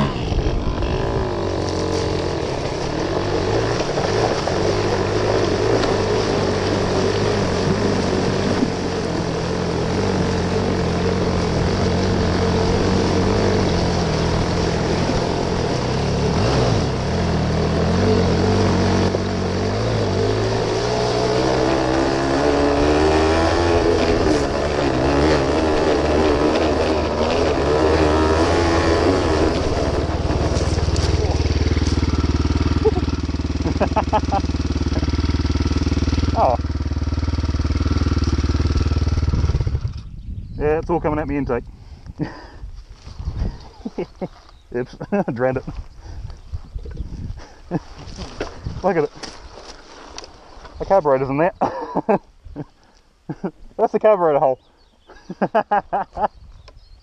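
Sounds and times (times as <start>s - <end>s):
two-stroke motorcycle engine: 0.0s - 41.0s.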